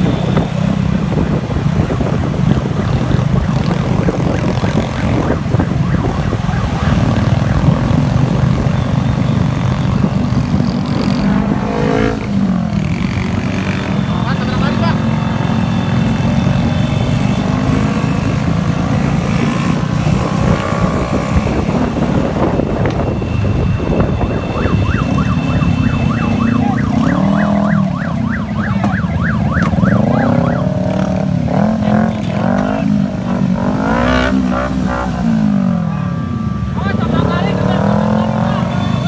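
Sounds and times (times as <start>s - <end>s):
motorcycle engines in traffic: 0.0s - 39.0s
rising and falling siren tones: 2.1s - 12.4s, 20.4s - 31.8s, 33.3s - 39.0s
fast warbling siren: 2.3s - 12.2s, 20.6s - 31.7s, 33.8s - 39.0s.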